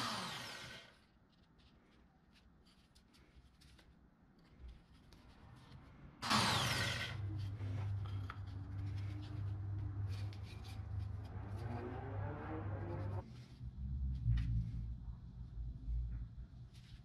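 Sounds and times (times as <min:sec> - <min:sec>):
electric drill motor hum: 0:00.0 - 0:00.9, 0:06.2 - 0:07.3.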